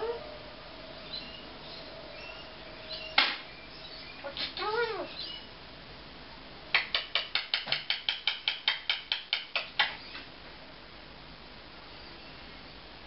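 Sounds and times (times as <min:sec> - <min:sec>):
parrot clicking: 0:06.7 - 0:10.0.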